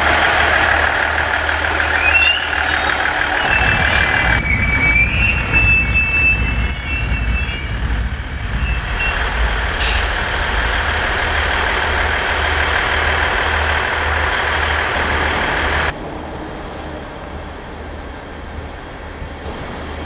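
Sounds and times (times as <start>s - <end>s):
low diesel engine rumble: 0.0s - 20.0s
train rolling noise: 0.0s - 20.0s
high-pitched metallic squeal: 1.2s - 14.1s.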